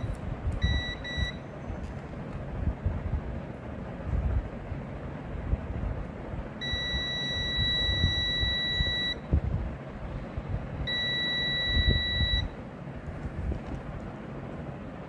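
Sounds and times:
multimeter continuity beep: 0.0 - 1.7, 6.6 - 9.3, 10.9 - 12.6.

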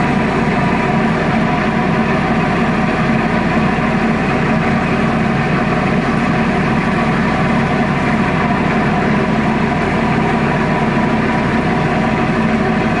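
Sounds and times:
tugboat diesel engine drone: 0.0 - 13.0.

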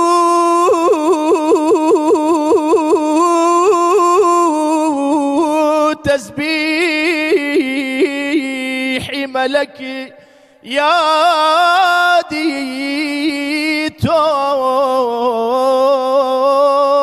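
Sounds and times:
man singing into a microphone: 0.0 - 17.0
singer breathing: 10.1 - 10.7.

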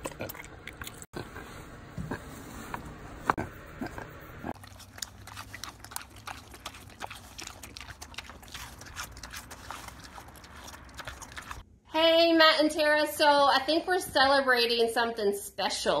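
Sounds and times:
pig crunching an apple: 3.3 - 11.6.

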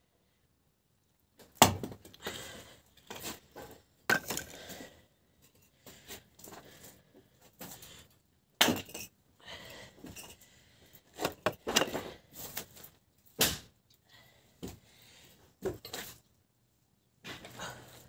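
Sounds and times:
wood pieces knocking: 4.1 - 4.6.

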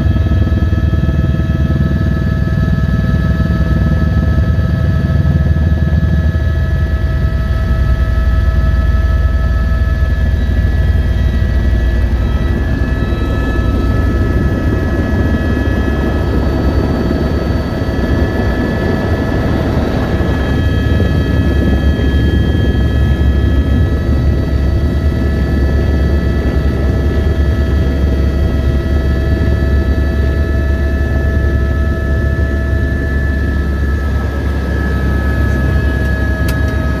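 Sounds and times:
helicopter rotor throb: 0.0 - 37.0
turbine whine: 0.0 - 37.0.

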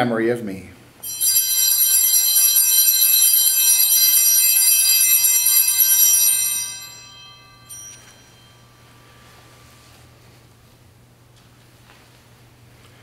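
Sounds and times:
altar bells jangling: 1.0 - 9.8.

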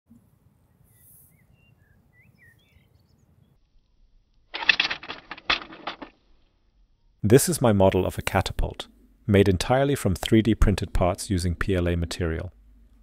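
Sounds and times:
faint bird chirps: 0.6 - 4.0
catapult arm plastic clatter: 4.6 - 6.2
sharp plastic clacks: 4.6 - 6.2.

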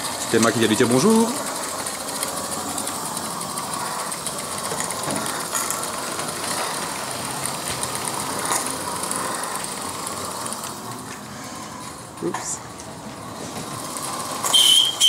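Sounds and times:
steam locomotive hiss: 13.3 - 15.0.

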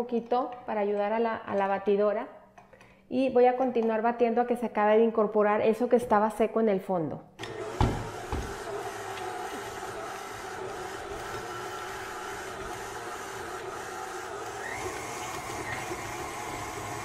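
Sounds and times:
stand mixer motor humming: 7.4 - 17.0.

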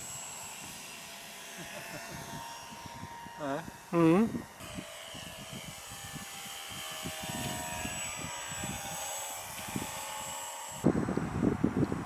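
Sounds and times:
electric motor and propeller whining: 0.0 - 12.0
wind rumbling on microphone: 2.0 - 12.0.

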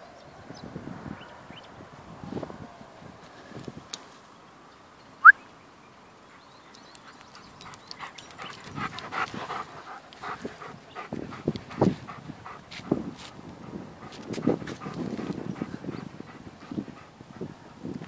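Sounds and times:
dog panting and snuffling: 6.4 - 17.6.

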